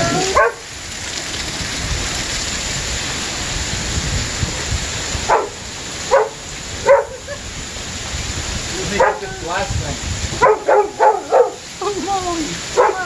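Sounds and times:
heavy rain pouring: 0.0s - 13.0s
wind gusting on microphone: 0.0s - 13.0s
dog barking: 0.1s - 0.6s, 5.3s - 7.4s, 8.9s - 9.3s, 10.4s - 11.7s, 12.7s - 13.0s.

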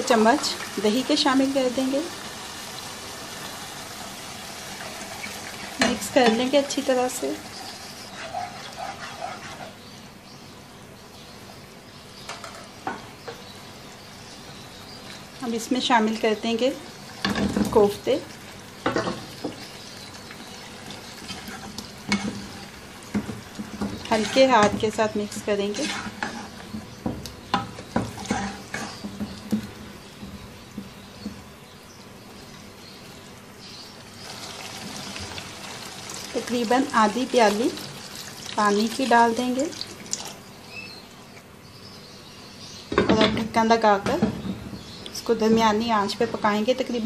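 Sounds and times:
gravy sizzling in a frying pan: 0.0s - 31.6s, 32.4s - 41.1s.

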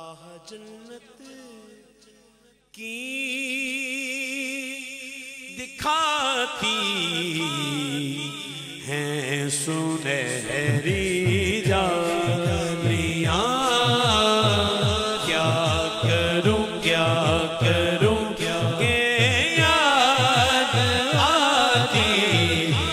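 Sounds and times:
man singing with vibrato: 0.0s - 2.2s, 2.8s - 22.9s
rhythmic pulse: 10.7s - 22.9s
chanted chorus: 11.8s - 22.9s.

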